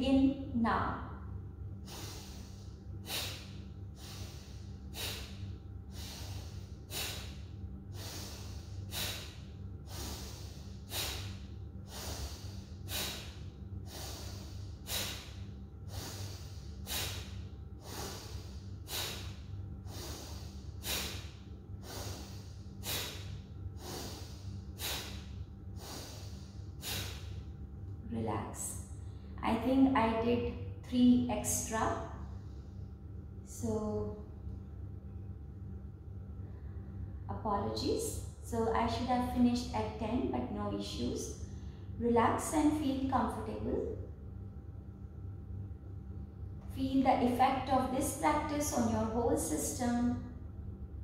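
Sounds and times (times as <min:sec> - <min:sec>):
low steady hum: 0:00.0 - 0:51.0
person breathing forcefully through nose: 0:01.8 - 0:27.5.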